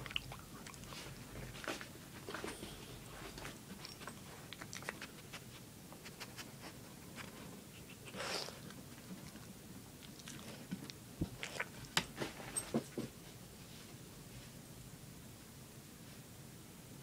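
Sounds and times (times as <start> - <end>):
dog chewing and crunching treats: 0.0 - 13.1.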